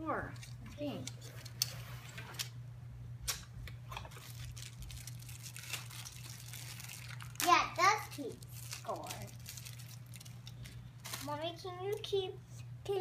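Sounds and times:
low steady hum: 0.0 - 13.0
rustles of handling: 4.0 - 12.0.

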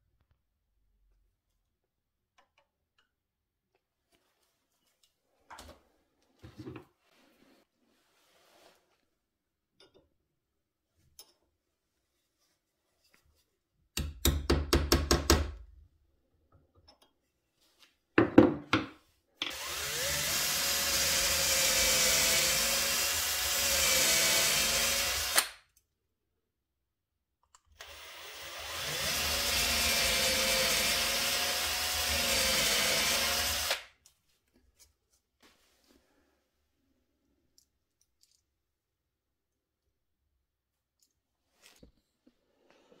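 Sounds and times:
cordless drill boring into wood: 19.5 - 25.5, 27.8 - 33.9.

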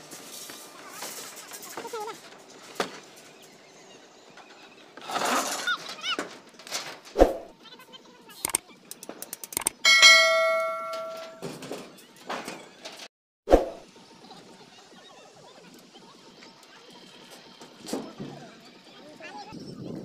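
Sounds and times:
sharp clicks: 8.4 - 9.8
bright bell ding: 9.8 - 11.5.

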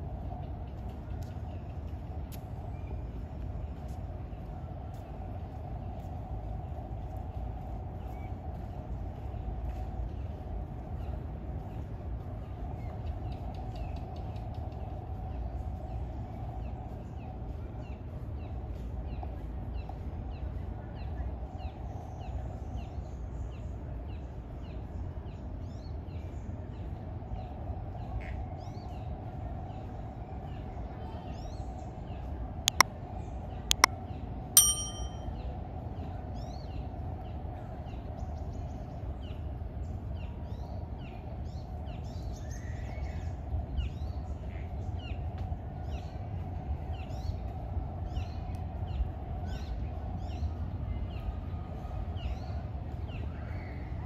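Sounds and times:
bright metallic ding: 34.6 - 35.2.

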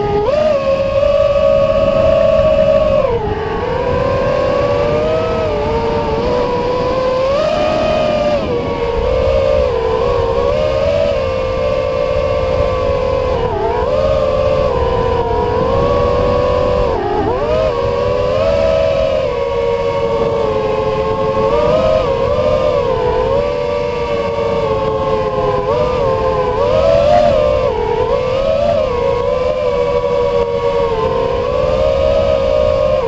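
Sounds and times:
drone motors whining: 0.0 - 33.0
wind rush on microphone: 0.0 - 33.0.

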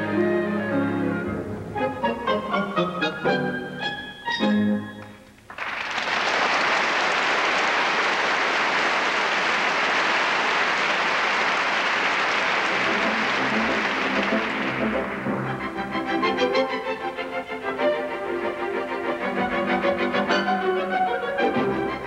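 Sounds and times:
orchestral music: 0.0 - 5.2, 12.5 - 22.0
audience applause: 5.5 - 15.8.

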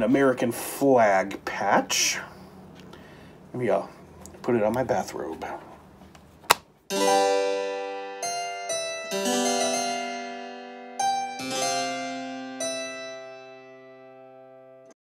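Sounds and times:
harpsichord-like keyboard chords: 6.9 - 15.0.

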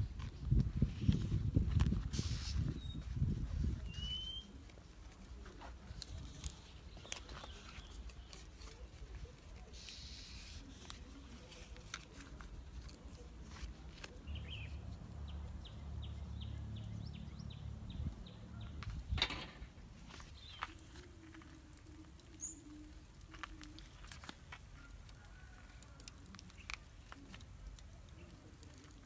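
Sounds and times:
leaves rustling and crackling: 0.0 - 16.8, 19.6 - 29.0
bird chirping: 3.9 - 4.6, 14.2 - 18.8, 20.3 - 24.0.

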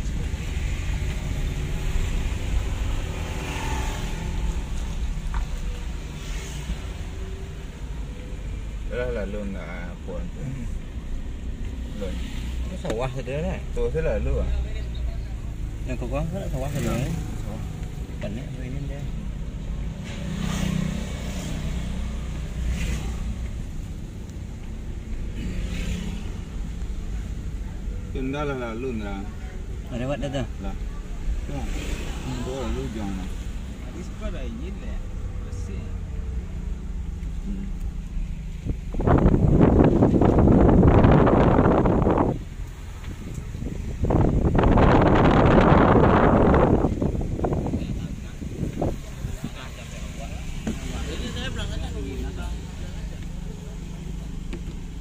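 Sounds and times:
car engine rumble: 0.0 - 55.0
tyre road noise: 0.0 - 55.0
passing motorcycle engine: 16.4 - 17.8.

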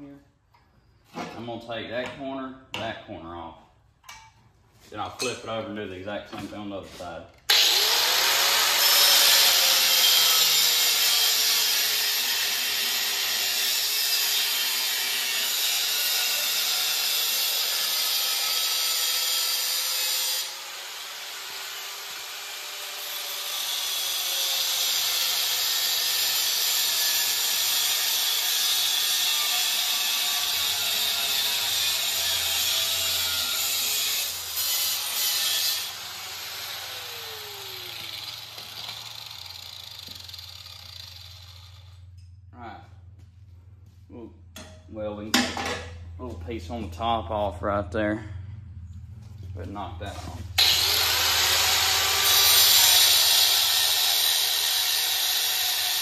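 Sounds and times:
power grinder grinding metal: 7.5 - 42.2, 50.1 - 56.0.

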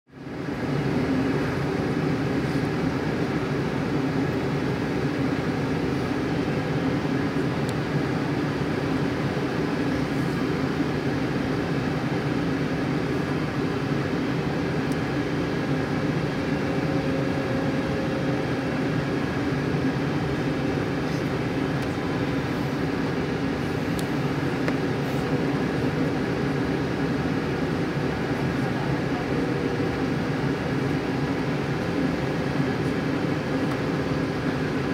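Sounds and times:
jet engines droning: 0.1 - 34.9
steady hum tones: 0.2 - 34.9.

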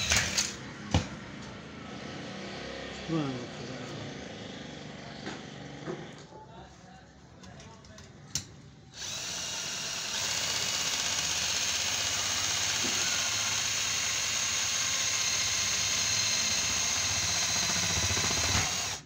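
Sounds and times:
cordless drill against sheet metal: 0.0 - 0.6, 9.0 - 19.0.

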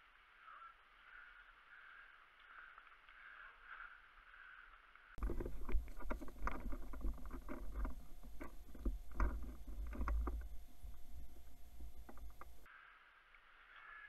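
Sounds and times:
quiet outdoor hiss: 0.0 - 14.0
low rumble: 5.2 - 12.7.

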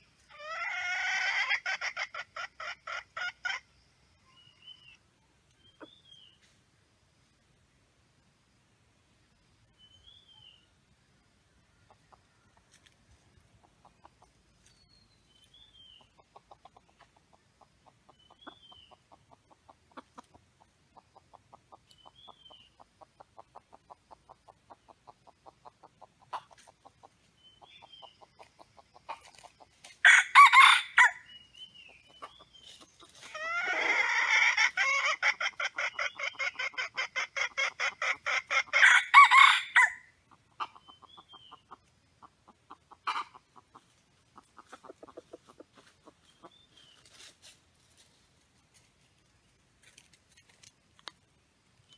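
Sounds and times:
rapid clucking: 11.8 - 14.7, 16.0 - 30.0, 40.3 - 48.1
rooster crowing: 30.0 - 31.2, 38.8 - 40.0.

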